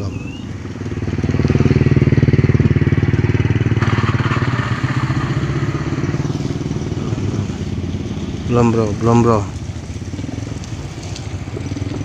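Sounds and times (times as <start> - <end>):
small engine running: 0.7 - 12.0
steady rain hiss: 4.6 - 12.0.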